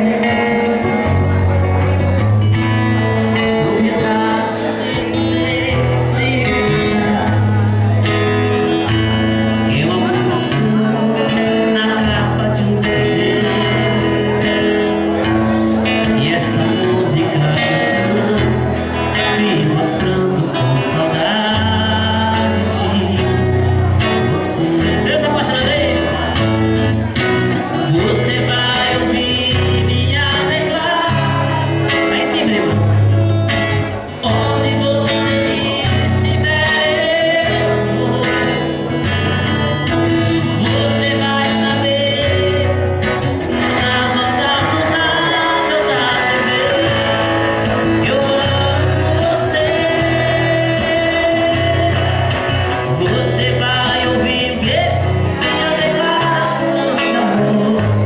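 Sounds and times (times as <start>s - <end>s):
acoustic guitar strumming: 0.0s - 58.0s
electric guitar: 0.0s - 58.0s
man singing: 0.0s - 58.0s.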